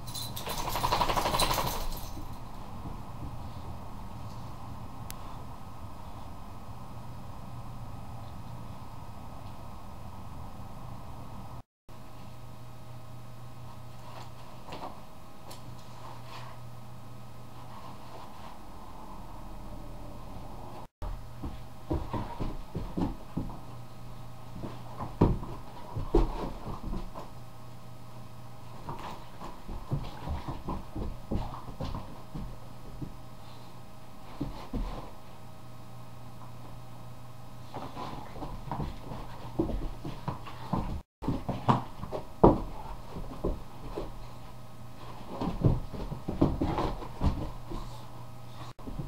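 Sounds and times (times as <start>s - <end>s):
low steady hum: 0.0s - 49.0s
puppy knocks and thumps: 37.8s - 44.2s, 45.2s - 47.9s.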